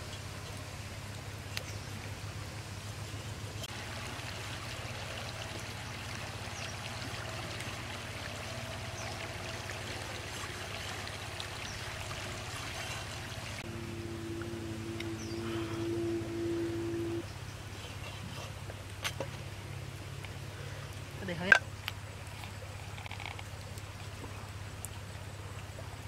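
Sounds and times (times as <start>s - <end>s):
stream rushing: 3.6s - 17.8s.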